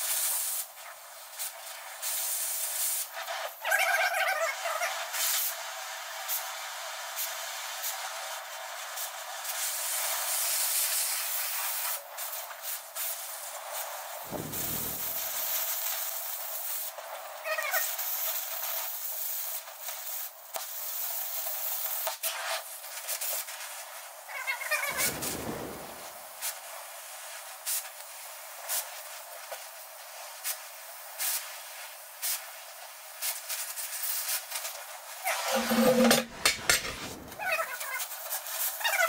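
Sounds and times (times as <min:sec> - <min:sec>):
pops and crackles of sparks: 0:14.3 - 0:15.8, 0:24.9 - 0:26.2
cutting torch hissing: 0:14.3 - 0:15.9, 0:24.8 - 0:26.8.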